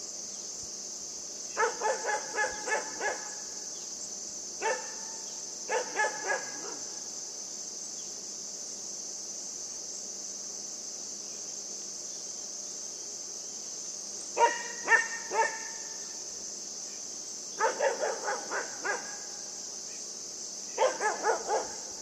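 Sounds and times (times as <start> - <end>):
insects chirring: 0.0 - 22.0
puppy barking: 1.6 - 3.3, 4.6 - 5.0, 5.7 - 6.8, 14.4 - 15.7, 17.6 - 19.2, 20.8 - 21.8.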